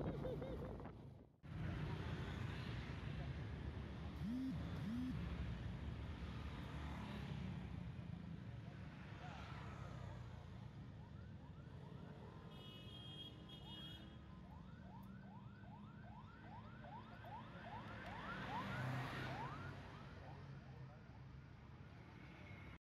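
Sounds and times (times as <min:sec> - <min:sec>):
road traffic noise: 0:01.5 - 0:22.8
emergency siren yelping: 0:14.5 - 0:20.0.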